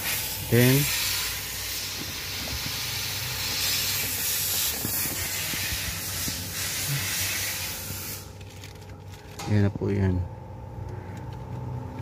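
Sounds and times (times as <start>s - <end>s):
steady hiss: 0.0s - 8.4s.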